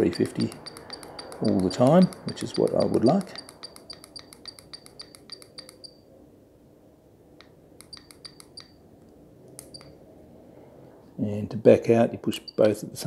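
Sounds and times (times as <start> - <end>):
button clicks: 0.0 - 5.9
short high beeps: 0.0 - 6.0.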